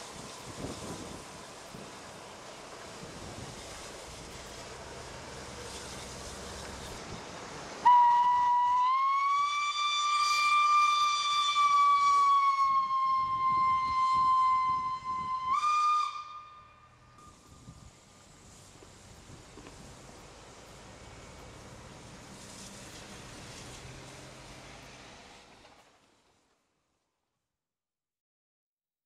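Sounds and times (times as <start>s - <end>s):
steam locomotive whistle: 7.8s - 17.6s.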